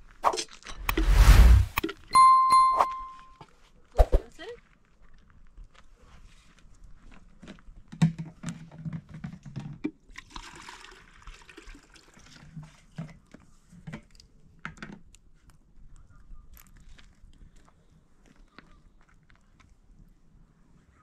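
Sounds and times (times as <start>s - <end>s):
water pouring from plastic jug: 10.1s - 12.9s.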